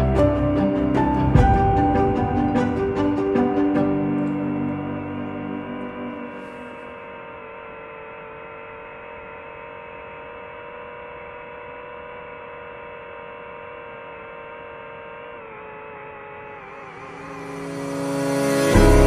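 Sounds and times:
steady hum of held tones: 0.0s - 19.0s.

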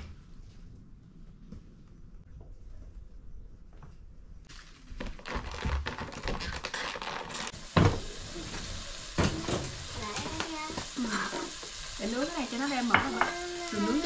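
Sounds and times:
raw meat sizzling: 6.2s - 14.0s
utensils clattering against pan: 9.2s - 11.5s, 12.6s - 14.0s.

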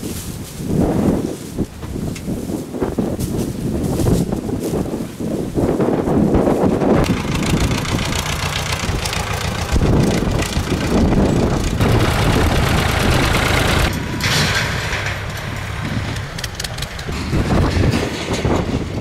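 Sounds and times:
wind noise on microphone: 0.0s - 19.0s
tractor engine idling: 7.0s - 17.8s.

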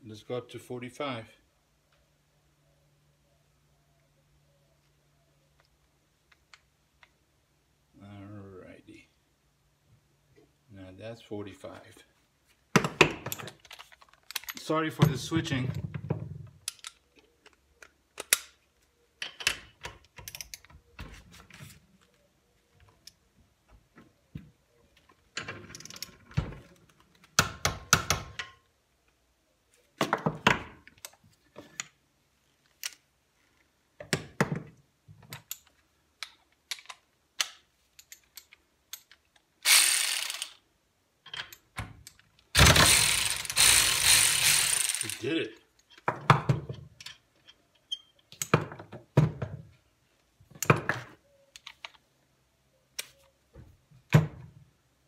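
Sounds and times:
cordless ratchet wrench motor: 39.6s - 40.6s, 42.6s - 45.2s.

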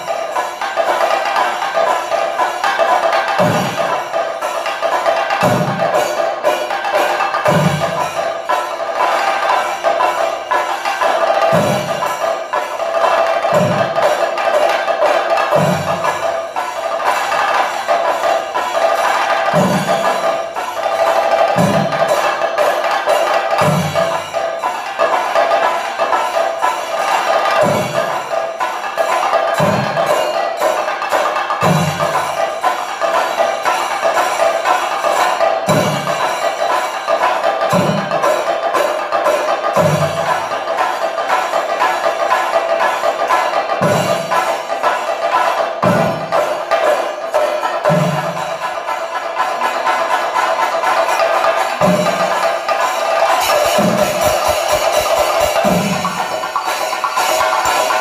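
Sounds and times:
hand cymbals ringing: 0.0s - 58.0s
fast drum stick strokes: 43.6s - 58.0s.

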